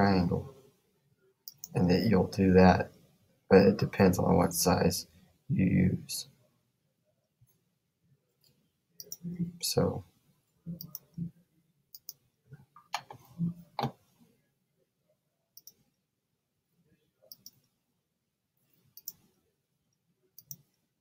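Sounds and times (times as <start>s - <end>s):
computer mouse clicking: 1.5s - 1.7s, 10.8s - 11.2s, 11.9s - 12.2s, 15.6s - 15.8s, 17.3s - 17.7s, 19.0s - 19.3s, 20.4s - 20.7s.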